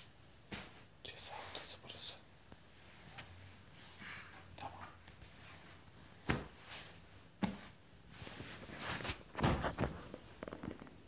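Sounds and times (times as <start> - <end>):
fabric rustling: 5.0 - 11.0.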